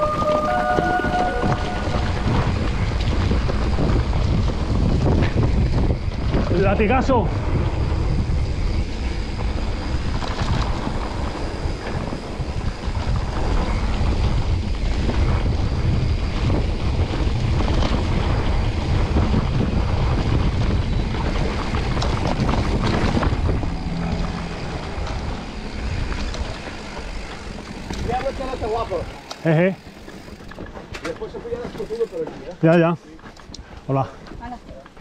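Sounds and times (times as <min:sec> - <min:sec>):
wind rushing over microphone: 0:00.0 - 0:31.0
bike knocks and rattles: 0:24.9 - 0:33.4.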